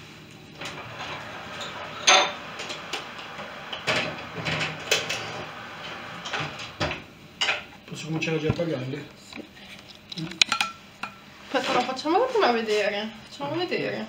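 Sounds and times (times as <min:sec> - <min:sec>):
baking pan scraping oven rack: 0:00.6 - 0:07.0.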